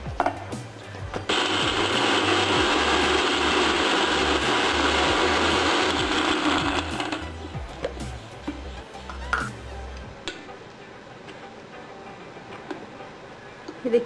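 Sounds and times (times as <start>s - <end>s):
mixer grinder motor whine: 1.3s - 7.3s.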